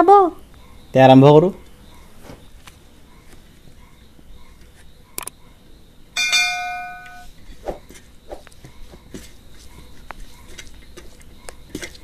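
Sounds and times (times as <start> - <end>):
bright multi-tone bell chime: 6.2 - 7.3.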